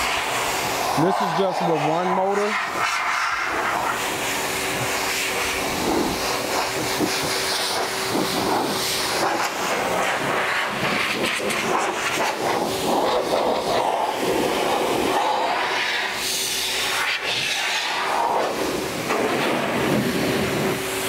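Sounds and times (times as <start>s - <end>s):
car dryer blowing air: 0.0s - 21.0s
low motor whine: 0.0s - 21.0s.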